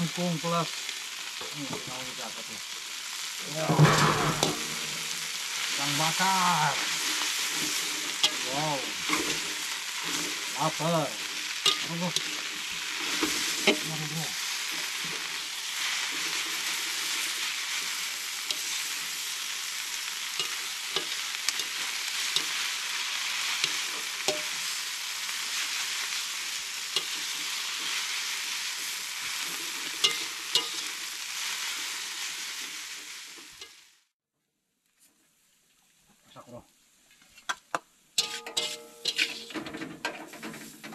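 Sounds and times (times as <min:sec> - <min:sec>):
vegetables sizzling in a pan: 0:00.0 - 0:34.1, 0:38.2 - 0:40.9
utensil scraping pan: 0:03.6 - 0:06.2, 0:06.8 - 0:15.3, 0:29.3 - 0:30.9, 0:38.2 - 0:40.9.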